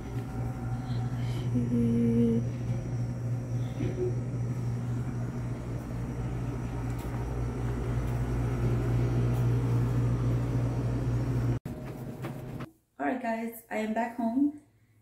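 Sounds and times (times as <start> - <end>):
refrigeration equipment humming: 0.0 - 12.7.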